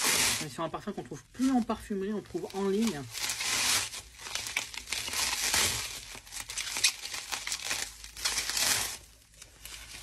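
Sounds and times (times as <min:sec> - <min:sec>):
bubble wrap crinkling: 0:00.0 - 0:10.0.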